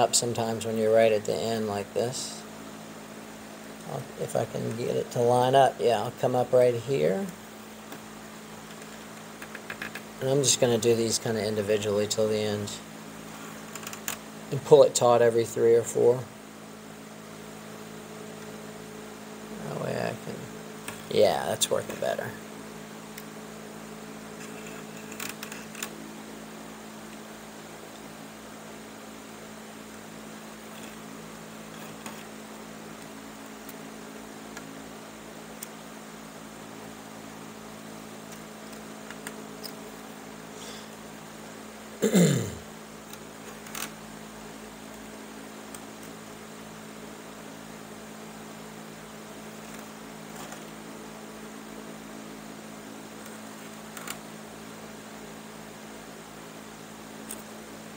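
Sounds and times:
electrical hum: 0.0 - 57.9
cane strands clicking and rustling: 13.2 - 14.3, 24.3 - 26.0, 29.9 - 33.9, 43.0 - 44.0, 49.5 - 50.8, 53.2 - 54.3.

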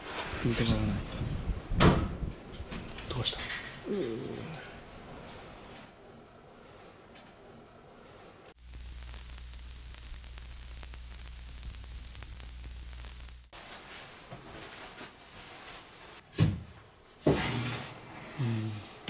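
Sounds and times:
low hum: 8.6 - 13.5
chair scraping: 17.3 - 18.4.

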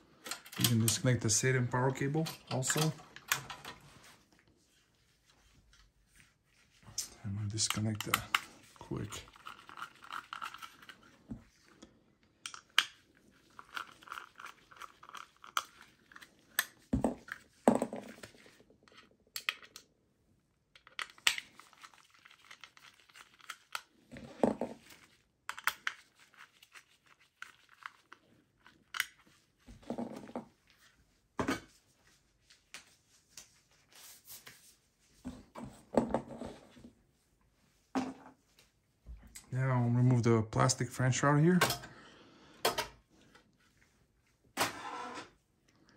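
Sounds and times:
hands handling computer parts: 0.1 - 4.4
soft rustling: 3.8 - 9.6, 26.0 - 39.3.

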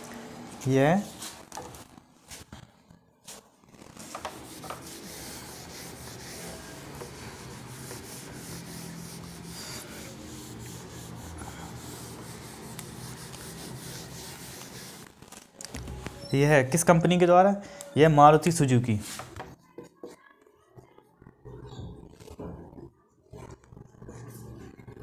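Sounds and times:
rubbing scratching noise: 3.3 - 15.3.

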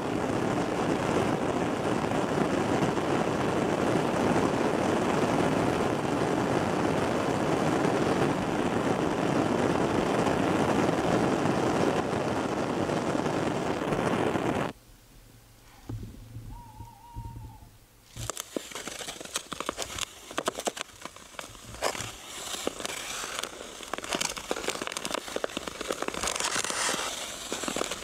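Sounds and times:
gas jet flame rushing: 7.0 - 14.7.

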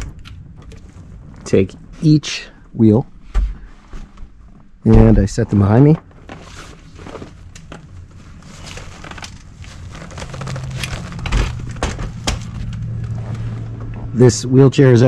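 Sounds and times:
low steady hum: 0.0 - 15.0
wheelchair wheels clicking and knocking: 8.7 - 13.4.

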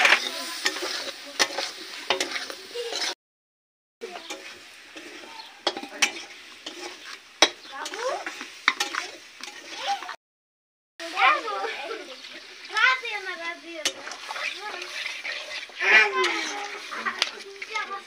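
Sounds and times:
metal spatula scraping a pan: 0.0 - 3.2, 4.0 - 10.2, 11.4 - 18.0
potatoes sizzling in a pan: 0.0 - 3.2, 4.0 - 10.2, 11.0 - 18.0
hands mixing dough: 11.1 - 18.0.

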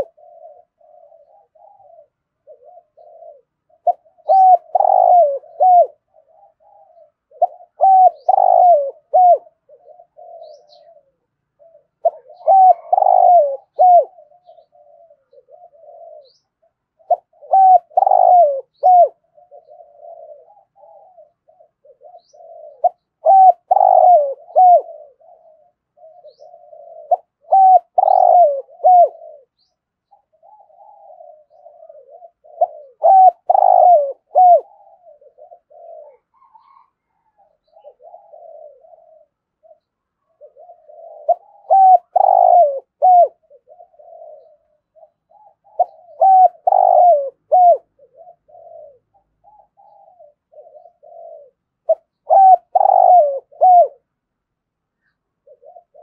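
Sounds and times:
dove cooing: 0.0 - 54.3, 55.0 - 56.0.

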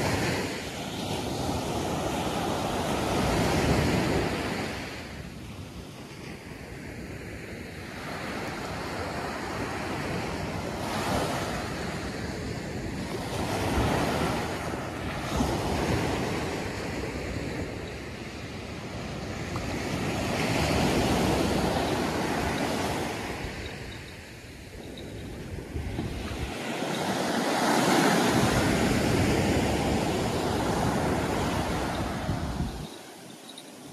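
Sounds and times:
surf washing up a beach: 0.0 - 33.9.

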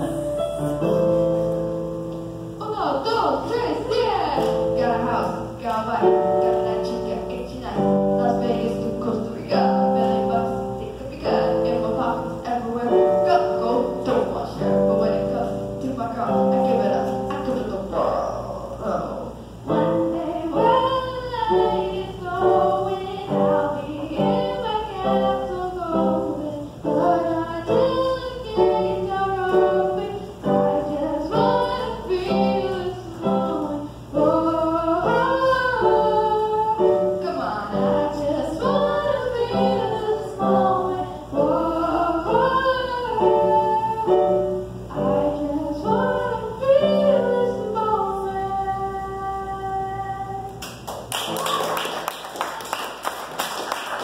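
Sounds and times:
electronic keyboard: 0.0 - 2.6
girl singing into a microphone: 19.3 - 50.6.

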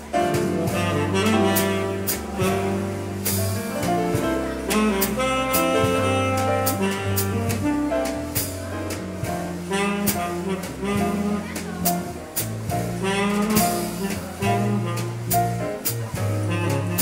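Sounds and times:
saxophone melody: 0.0 - 3.3, 4.2 - 8.4, 9.4 - 12.1, 12.9 - 15.4, 16.4 - 17.0
drum kit: 0.0 - 17.0
electric bass guitar: 0.0 - 17.0
piano: 0.0 - 17.0.

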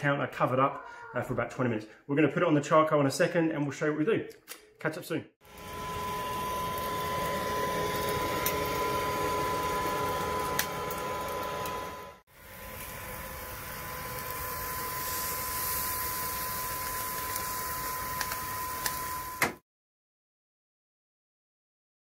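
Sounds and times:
chicken sizzling on grill: 5.4 - 19.4
grill fan whirring: 5.4 - 19.4.

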